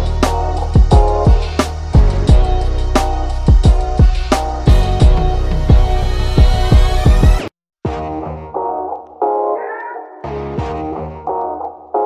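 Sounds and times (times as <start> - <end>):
background music with drum beat: 0.0 - 8.2
deep kick drum hits: 0.8 - 2.5, 3.5 - 7.4.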